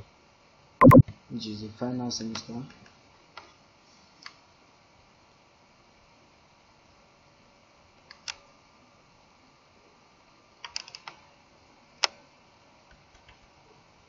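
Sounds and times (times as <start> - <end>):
keyboard and mouse clicks: 0.8 - 1.0.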